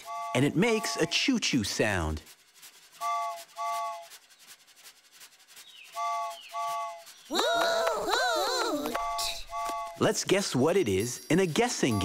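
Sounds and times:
cartoon steam train whistle: 0.0s - 1.2s, 3.0s - 4.1s, 6.0s - 8.4s
faint train chuffing: 0.0s - 7.6s.

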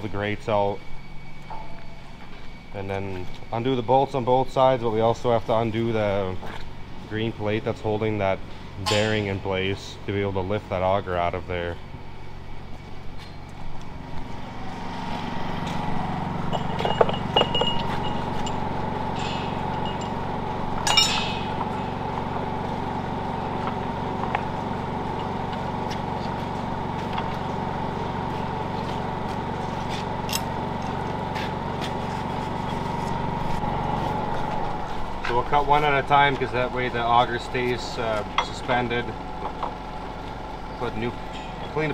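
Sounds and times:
steady mechanical hum: 0.0s - 41.9s
metallic clinks of tools: 16.5s - 22.0s.

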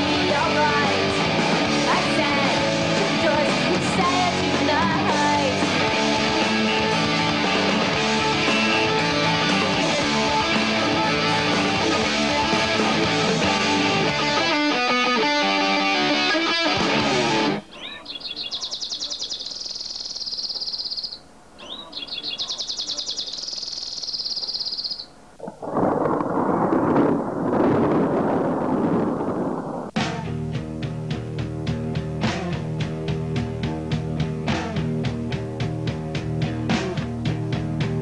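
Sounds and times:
guitar rock music: 0.0s - 17.7s, 30.0s - 38.0s
high rapid chirping trills: 17.7s - 25.1s.

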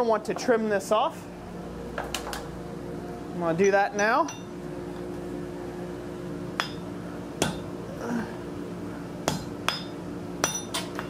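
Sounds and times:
hammer striking hot steel: 6.6s - 7.7s, 9.2s - 11.0s.

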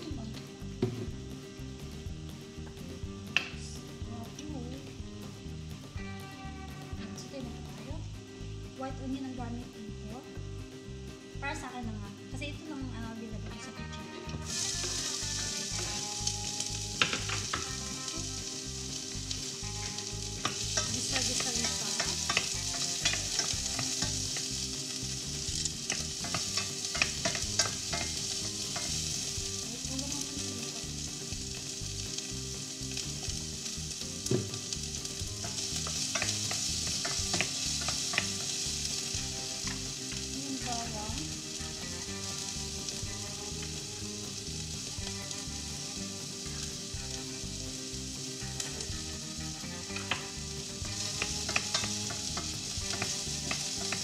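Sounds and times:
onion sizzling in a pan: 0.0s - 54.0s
utensil stirring and tapping pan: 2.6s - 3.6s, 14.4s - 47.5s, 48.3s - 54.0s.

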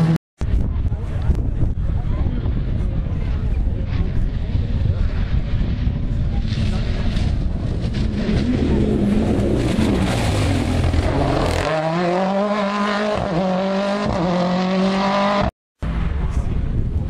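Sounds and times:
wind buffeting microphone: 0.4s - 11.6s, 15.9s - 17.0s
rally car engine accelerating: 3.9s - 16.4s.

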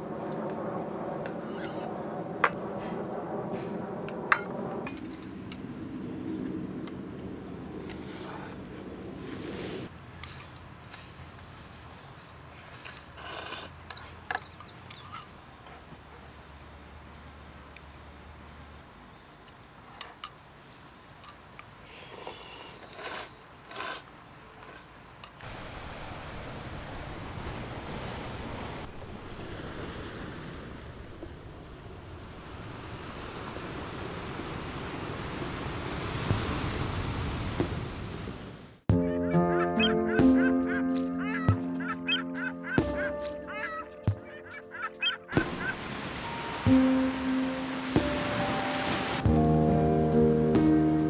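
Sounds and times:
insects chirring: 0.0s - 25.5s, 39.3s - 49.3s.

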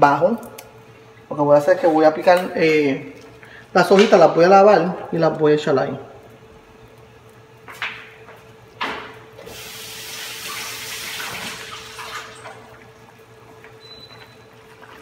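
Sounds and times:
steady low hum: 0.0s - 10.2s
kitchen tap running: 9.4s - 15.0s.

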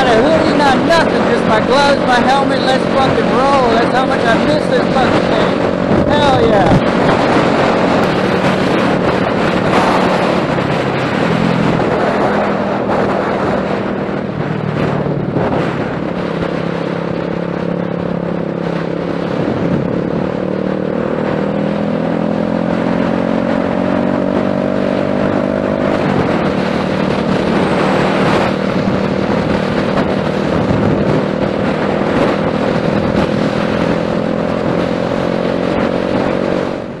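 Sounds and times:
motorcycle engine running: 0.0s - 37.0s
wind rushing over microphone: 0.0s - 37.0s.

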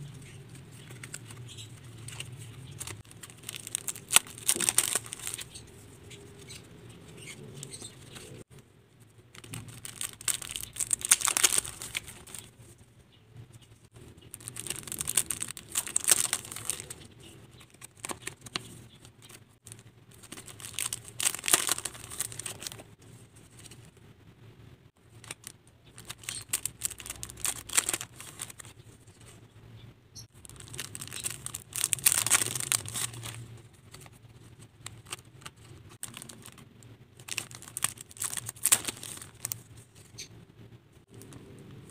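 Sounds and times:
cellophane crinkling and tearing: 0.8s - 5.6s, 9.4s - 12.5s, 14.2s - 22.8s, 25.1s - 28.7s, 30.3s - 39.8s.

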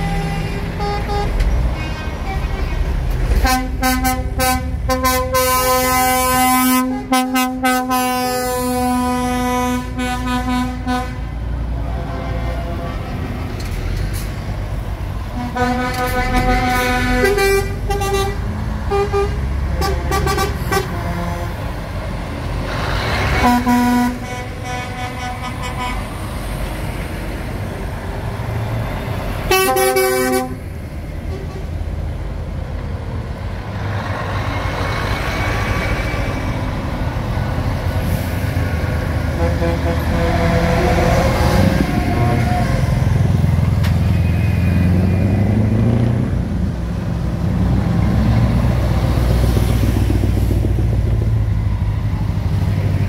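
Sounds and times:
diesel engines rumbling: 0.0s - 53.0s
lorry air horn blasts: 3.4s - 11.2s, 23.4s - 26.0s, 29.5s - 30.6s, 39.4s - 42.9s.

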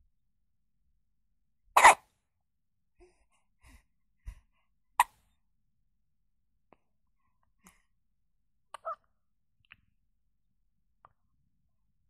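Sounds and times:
baby hiccuping: 1.8s - 2.0s, 8.7s - 9.0s.

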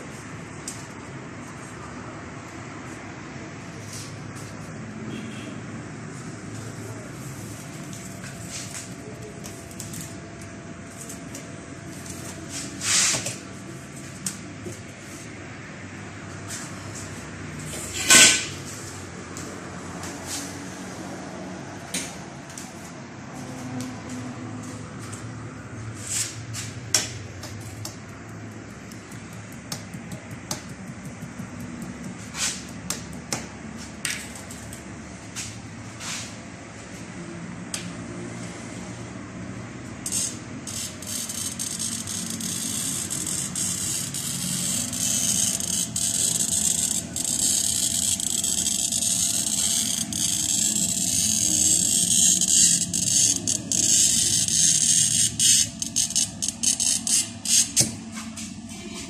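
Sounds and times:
glass cutter scoring glass: 27.0s - 33.5s, 40.0s - 58.1s.

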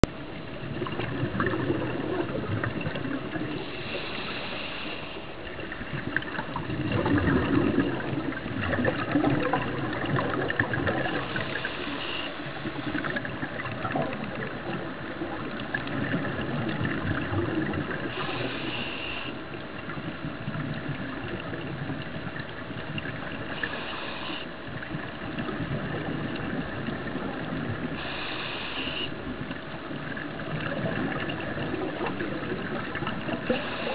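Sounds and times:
exhaled bubbles gurgling: 0.0s - 33.9s
faint steady hum: 0.0s - 33.9s
regulator inhalation hiss: 3.6s - 5.3s, 11.2s - 12.8s, 18.2s - 19.4s, 23.6s - 24.6s, 28.0s - 29.2s, 33.6s - 33.9s.

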